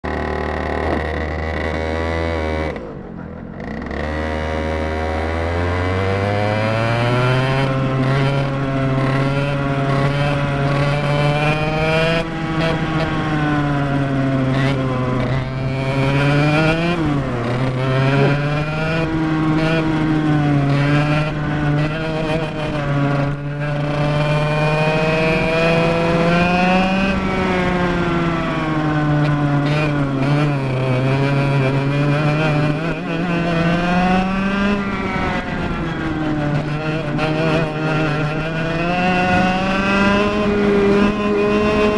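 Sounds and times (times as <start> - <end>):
two-stroke kart engine revving: 0.0 - 41.9.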